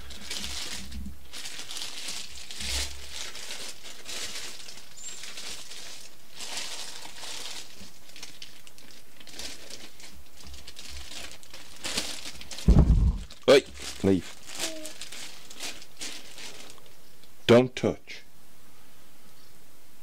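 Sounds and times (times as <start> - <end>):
plastic bag crinkling: 0.0 - 17.0
low thumps: 12.6 - 13.3.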